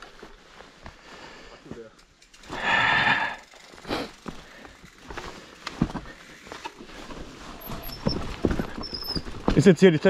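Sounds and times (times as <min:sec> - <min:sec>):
mountain bike clattering over rocks: 0:01.8 - 0:02.7, 0:03.4 - 0:10.0.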